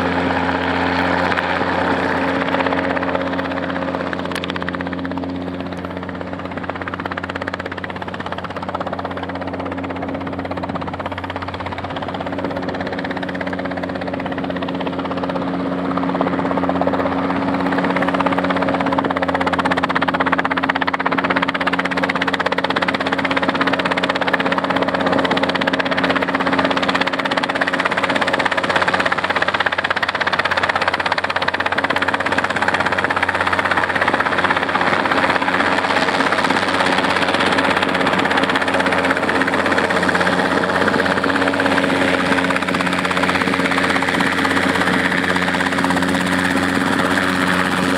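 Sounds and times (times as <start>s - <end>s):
helicopter engine and rotor drone: 0.0s - 47.9s.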